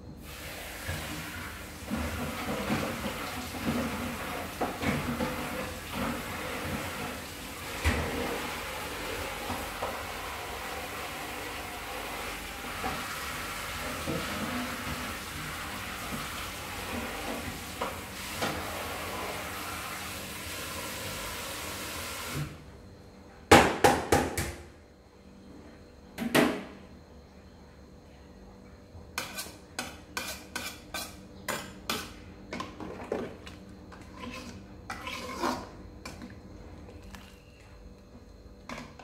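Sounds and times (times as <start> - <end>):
soup boiling on gas burner: 0.2 - 22.4.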